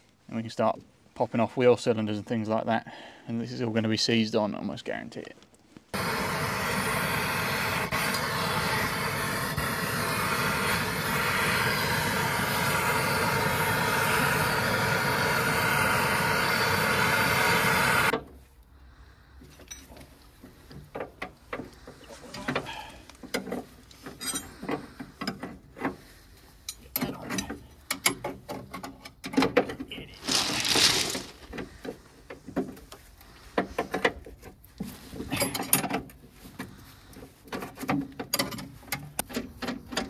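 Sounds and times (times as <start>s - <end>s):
aerosol can spraying: 6.0s - 18.1s
spanner clicks and metallic knocks: 37.6s - 40.0s.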